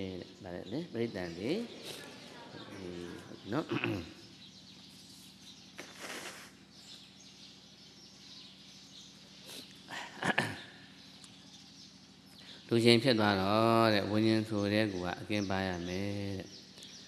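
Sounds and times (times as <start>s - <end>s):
faint steady hum: 0.0s - 17.0s
wiping nose with tissue: 5.0s - 6.6s
man sniffing: 9.4s - 10.5s.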